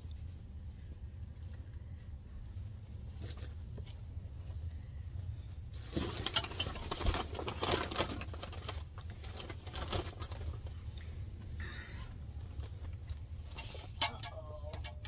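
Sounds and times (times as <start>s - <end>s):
steady low hum: 0.0s - 7.3s
wrapping crinkling and rustling: 5.7s - 11.4s.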